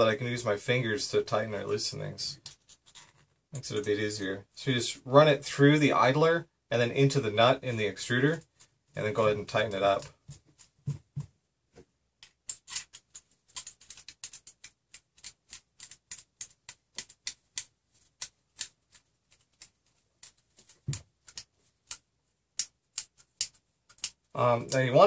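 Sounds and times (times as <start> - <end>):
small clicks and ticks: 12.2 - 24.8.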